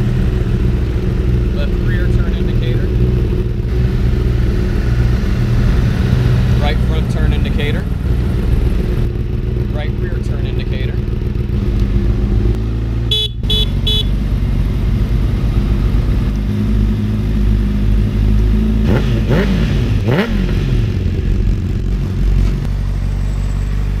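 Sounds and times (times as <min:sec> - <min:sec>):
motorcycle engine idling: 0:00.0 - 0:18.6
throttle blips revving engine: 0:11.5 - 0:17.3, 0:18.4 - 0:21.2
motorcycle horn toots: 0:13.1 - 0:14.2.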